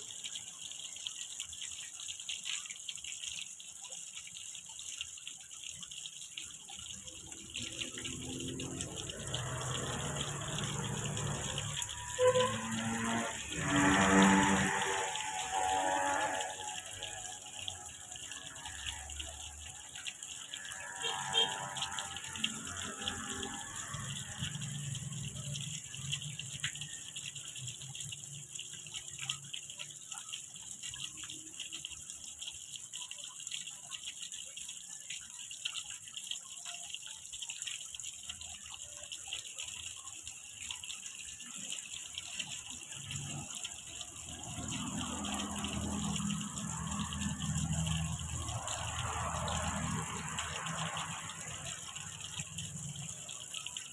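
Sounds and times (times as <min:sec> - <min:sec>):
water splashing on water: 0:00.0 - 0:53.9.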